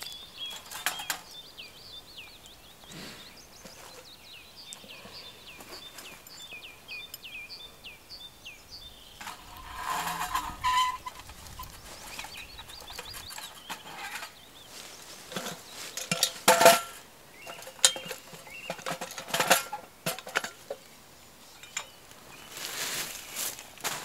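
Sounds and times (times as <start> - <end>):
faint birdsong: 0.0 - 24.0
metal cookware clanking: 0.5 - 1.3, 9.2 - 14.4, 15.3 - 20.8.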